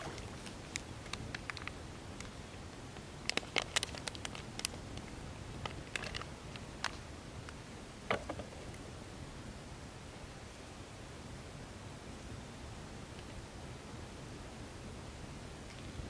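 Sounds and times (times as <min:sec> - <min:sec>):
plastic bag crinkling: 0:03.3 - 0:04.8.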